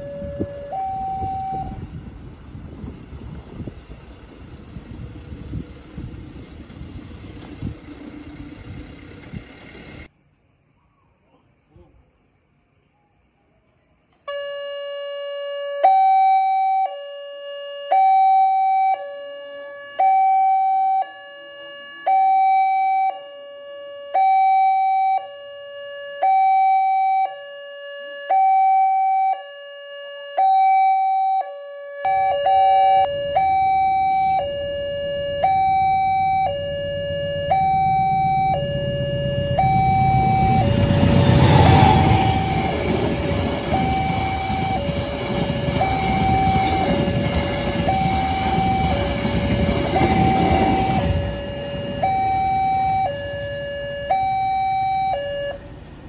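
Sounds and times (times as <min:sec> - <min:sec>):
level crossing two-tone alarm: 0:00.0 - 0:02.3, 0:14.3 - 0:55.8
passing train rumble: 0:00.0 - 0:10.1, 0:32.1 - 0:56.0.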